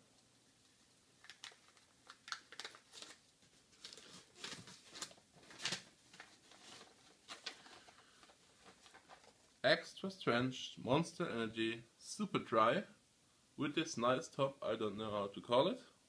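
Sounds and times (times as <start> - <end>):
packaging rustling: 1.2 - 9.5.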